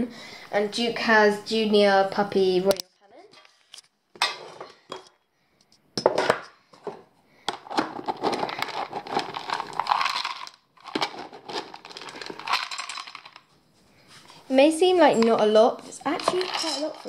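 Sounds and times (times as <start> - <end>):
dog kibble rattling: 8.2 - 13.4, 16.0 - 17.0.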